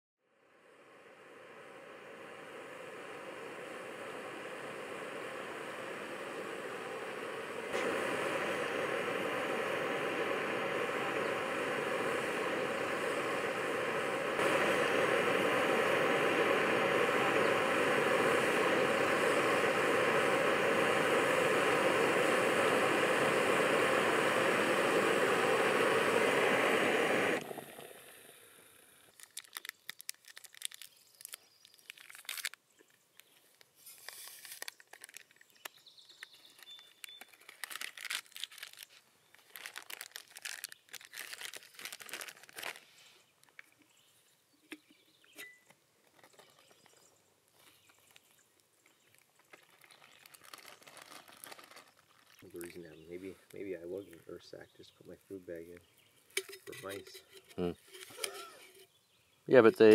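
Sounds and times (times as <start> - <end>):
gas burner roaring hiss: 0.4 - 29.7, 56.4 - 58.8, 59.5 - 59.9
plastic pouches crinkling: 29.1 - 43.8, 46.0 - 53.8.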